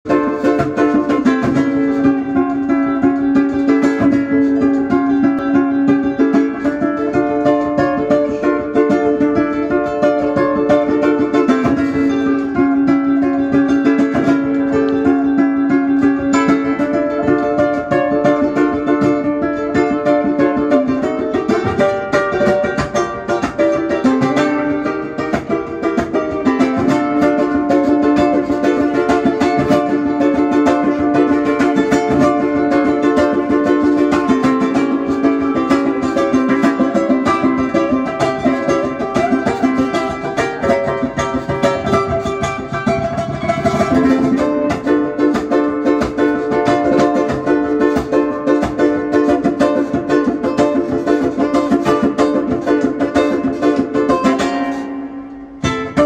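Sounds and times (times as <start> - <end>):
ukulele strumming: 0.0 - 56.0.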